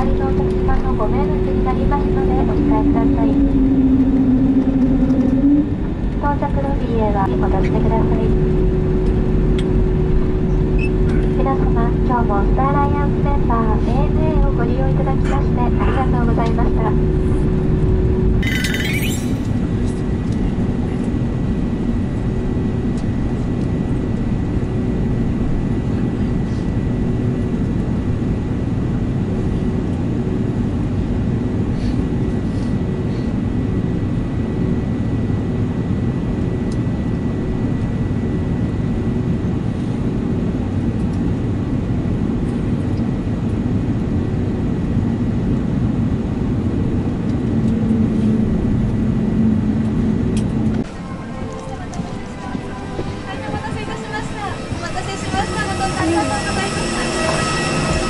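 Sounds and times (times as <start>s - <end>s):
low rumble of jet engines idling: 0.0s - 18.4s, 19.4s - 58.0s
faint steady whine: 46.2s - 58.0s.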